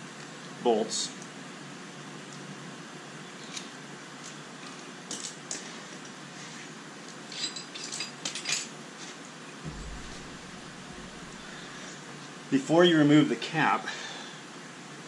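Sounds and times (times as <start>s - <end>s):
soft low thump: 9.7s - 12.1s.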